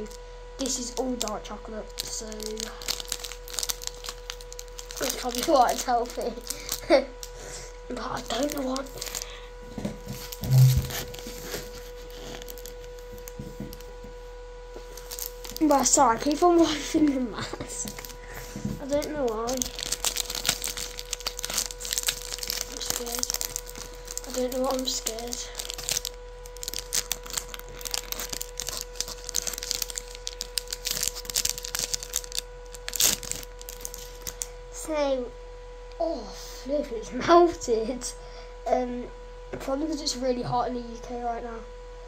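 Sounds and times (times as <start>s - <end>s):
wrapper crinkling: 0.0s - 7.4s, 8.1s - 14.0s, 14.8s - 34.5s.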